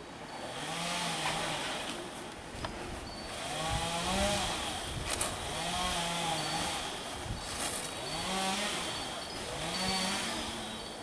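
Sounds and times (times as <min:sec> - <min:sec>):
chainsaw idling: 0:07.9 - 0:10.9.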